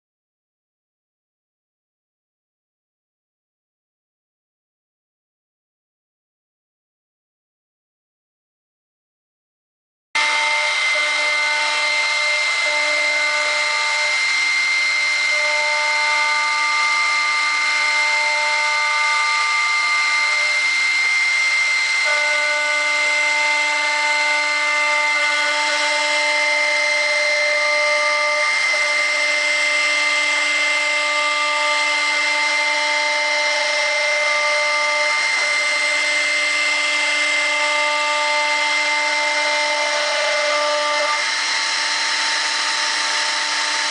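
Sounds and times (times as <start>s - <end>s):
machine motor lower tones: 10.2s - 43.9s
router spindle high-pitched whine: 10.2s - 43.9s.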